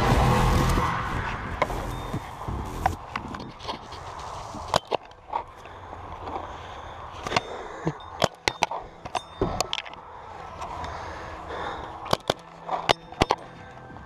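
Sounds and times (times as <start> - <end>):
low outdoor background: 0.0 - 14.0.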